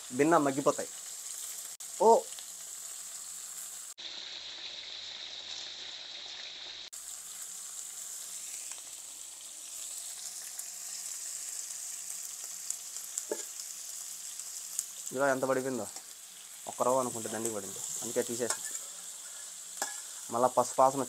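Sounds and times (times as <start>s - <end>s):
onions sizzling in oil: 0.0s - 21.0s
spoon clicking against pan: 19.8s - 20.0s.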